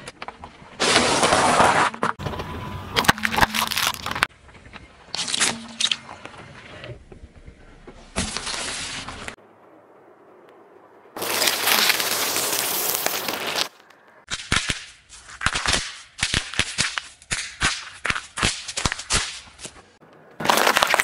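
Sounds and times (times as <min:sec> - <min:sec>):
tyre crushing packaged food: 0:03.0 - 0:04.2, 0:20.4 - 0:21.0
dry pasta crunching: 0:03.0 - 0:04.3, 0:20.4 - 0:21.0.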